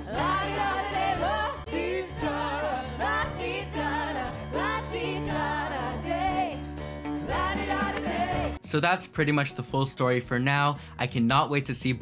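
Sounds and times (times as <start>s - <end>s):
band accompaniment: 0.1s - 8.6s.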